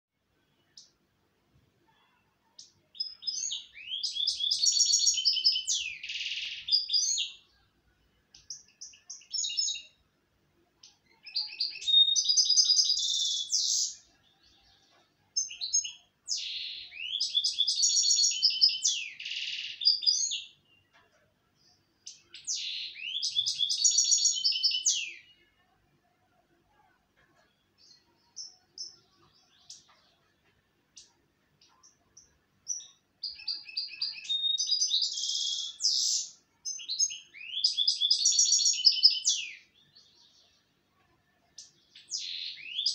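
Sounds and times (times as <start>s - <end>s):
goldfinch twittering song: 2.6s - 7.5s, 10.8s - 21.0s, 21.6s - 25.6s, 30.9s - 40.6s, 41.5s - 42.9s.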